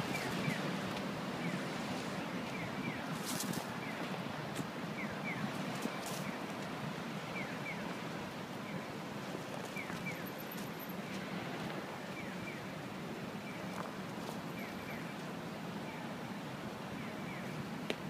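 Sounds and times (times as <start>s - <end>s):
traffic passing: 0.0s - 8.3s.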